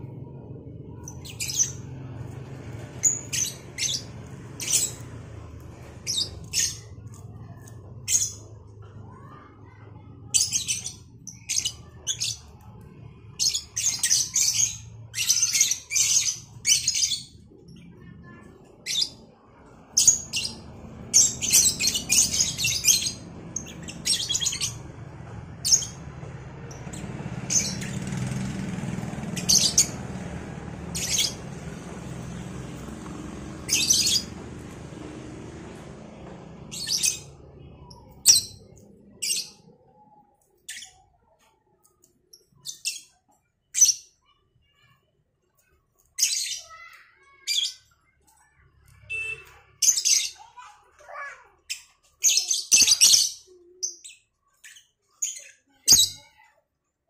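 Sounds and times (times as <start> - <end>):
lovebirds chirping: 1.0 - 8.4, 49.1 - 50.6.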